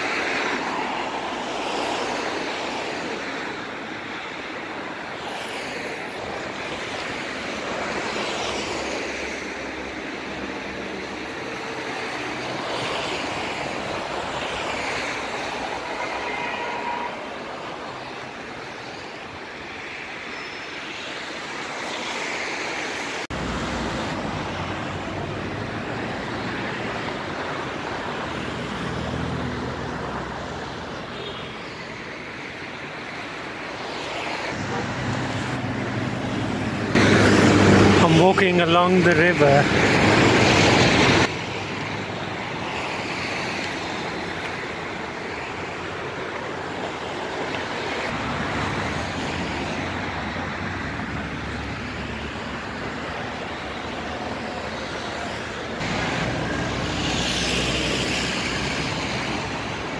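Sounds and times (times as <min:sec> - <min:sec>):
road traffic passing: 0:00.0 - 0:59.9.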